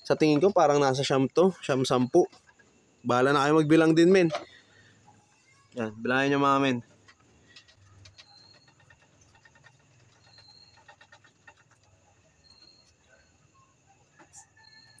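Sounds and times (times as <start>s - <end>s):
hamster pups squeaking: 0.0s - 15.0s.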